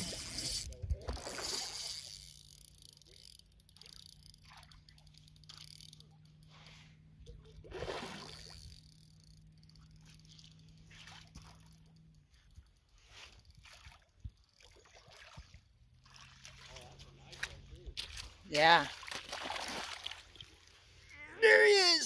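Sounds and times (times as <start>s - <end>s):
fish splashing in water: 7.6s - 11.9s, 13.3s - 16.9s, 18.0s - 20.8s.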